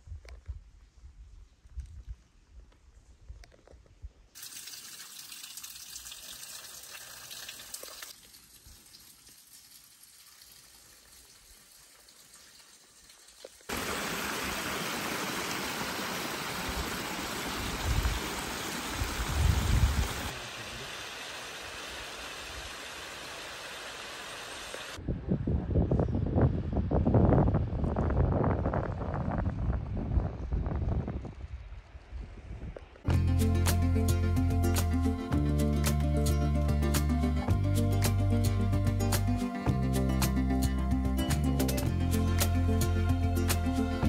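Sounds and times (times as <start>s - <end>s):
stream water cascading over stones: 4.4s - 25.0s
wind gusts on microphone: 16.6s - 20.3s, 25.0s - 33.0s.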